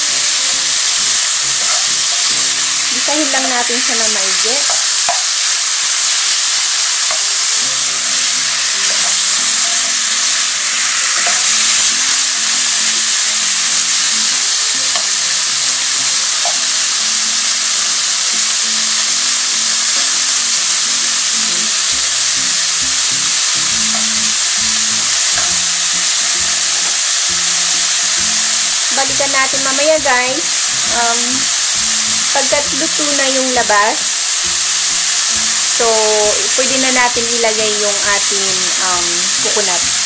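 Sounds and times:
chicken sizzling in hot oil: 0:00.0 - 0:40.0
spatula stirring in pan: 0:00.8 - 0:17.9.

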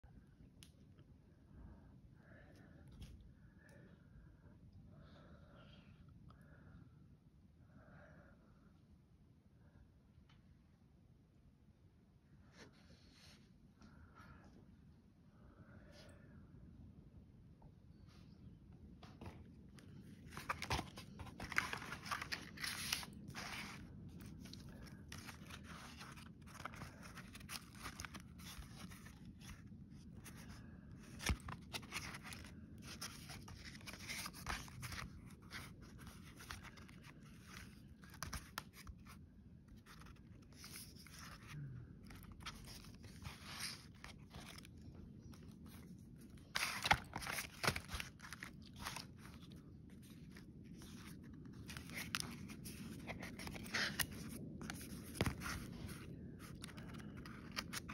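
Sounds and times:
paper rustling: 0:19.2 - 0:57.9.

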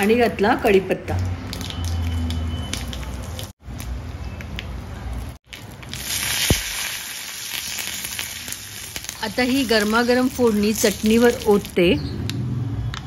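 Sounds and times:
spices sizzling in hot oil: 0:05.5 - 0:11.8.

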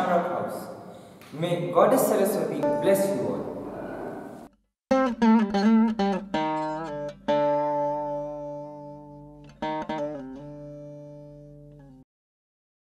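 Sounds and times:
plucked string instrument: 0:02.6 - 0:03.8, 0:04.9 - 0:12.0.

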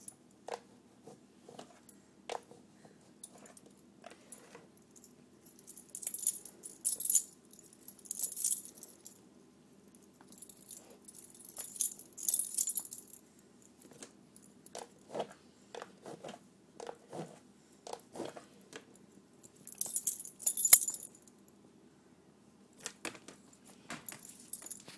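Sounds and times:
chain collar and tags jingling: 0:05.0 - 0:09.2, 0:10.3 - 0:13.2, 0:19.6 - 0:21.3.

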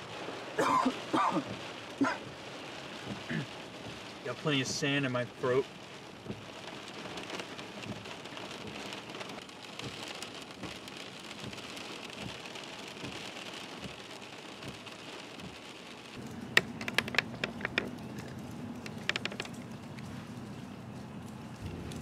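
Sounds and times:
heavy rain on car roof: 0:00.0 - 0:22.0
sharp clicks: 0:16.5 - 0:20.0.

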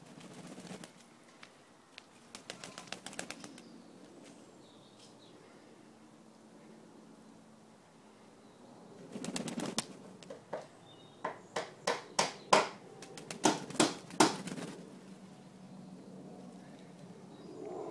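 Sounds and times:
pigeon wings flapping: 0:00.0 - 0:01.1, 0:02.2 - 0:03.7, 0:09.1 - 0:10.0, 0:13.0 - 0:14.9.

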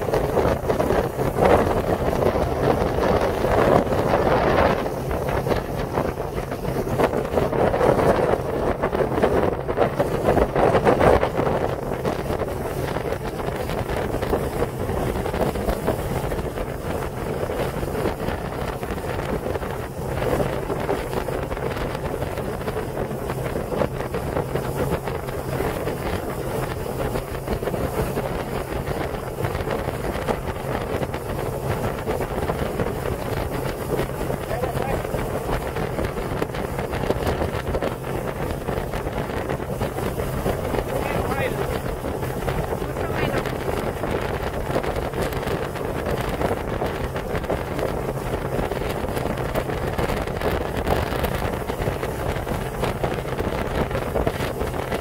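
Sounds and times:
boat engine droning: 0:00.0 - 0:55.0
wind buffeting microphone: 0:00.0 - 0:55.0.

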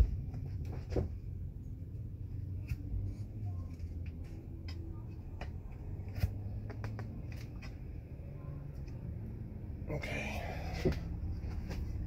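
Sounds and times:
low steady hum: 0:00.0 - 0:12.0
light clicks and taps: 0:03.8 - 0:05.8.

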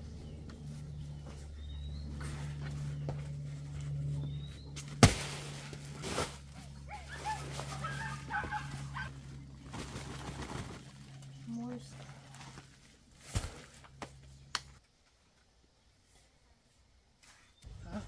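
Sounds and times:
steady low hum: 0:00.0 - 0:18.0
heavy sack thudding on ground: 0:04.9 - 0:06.5
sack rustling: 0:05.0 - 0:13.7
high animal cries: 0:06.9 - 0:09.3.

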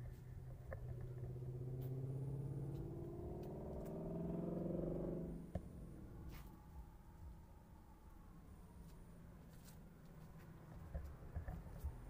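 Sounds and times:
passing vehicle engine: 0:00.0 - 0:07.2.

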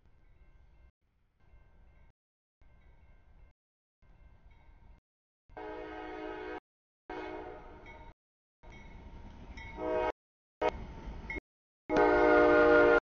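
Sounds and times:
locomotive horn sounding: 0:05.6 - 0:07.8, 0:09.8 - 0:10.8, 0:11.9 - 0:13.0.

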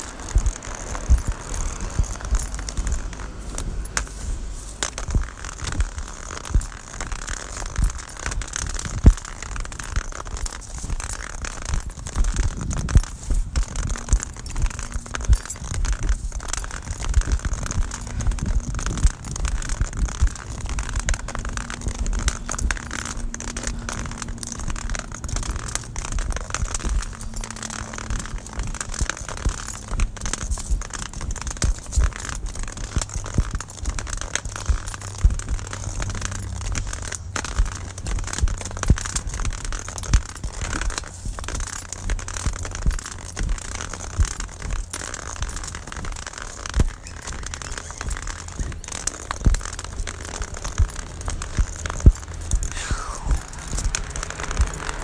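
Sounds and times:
rustling handling noise: 0:00.0 - 0:55.0
low rumble: 0:49.4 - 0:54.8.

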